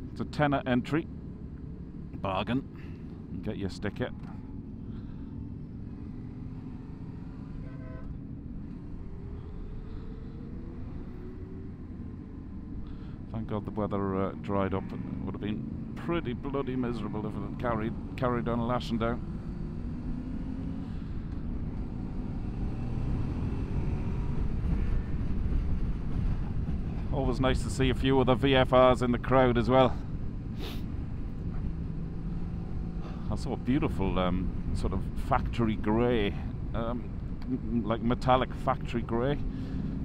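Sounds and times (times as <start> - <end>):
wind and road rush: 0.0 - 40.0
vehicle horn toot: 7.6 - 8.1.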